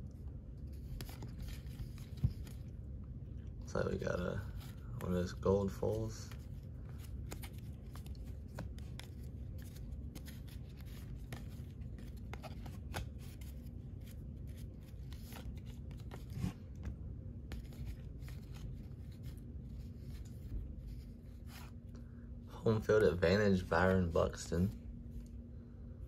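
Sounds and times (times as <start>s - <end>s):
steady low hum: 0.0s - 26.0s
paper cards being flipped: 0.6s - 2.8s, 6.2s - 21.8s.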